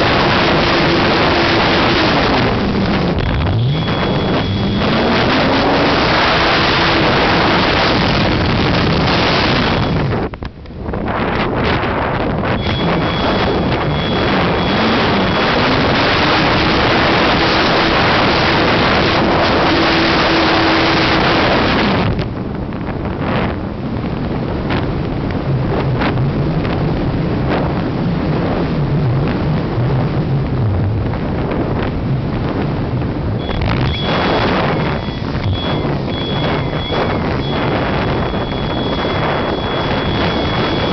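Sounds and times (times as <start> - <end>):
faint motor hum: 1.8 - 6.0, 12.6 - 16.5, 33.3 - 40.9
airflow rushing over camera: 33.1 - 40.9.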